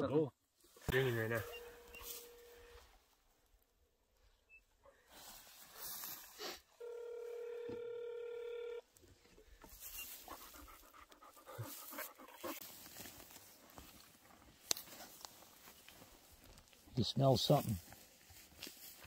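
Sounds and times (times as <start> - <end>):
phone ringback tone: 0.9 - 2.8, 6.8 - 8.9
dog panting: 10.0 - 12.7.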